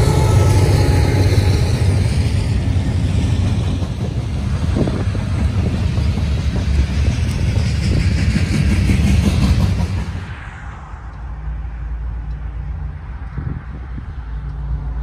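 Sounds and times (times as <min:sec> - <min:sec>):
diesel locomotives rumbling: 0:00.0 - 0:15.0
train wheels on rails: 0:00.0 - 0:15.0.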